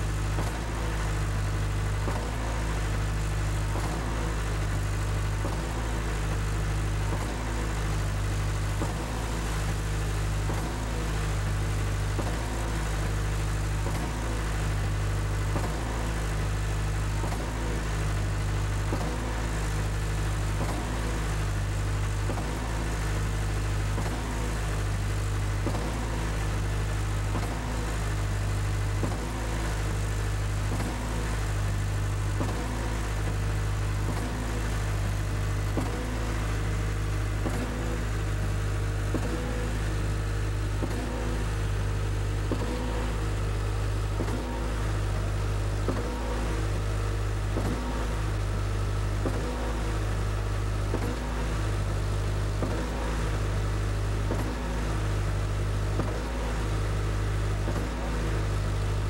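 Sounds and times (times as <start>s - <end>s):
concrete pump engine humming: 0.0s - 59.0s.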